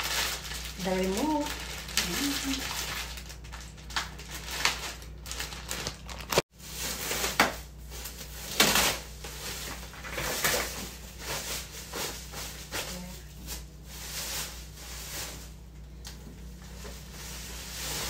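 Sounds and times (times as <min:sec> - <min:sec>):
packaging rustling and crinkling: 0:00.0 - 0:15.6, 0:16.2 - 0:18.0.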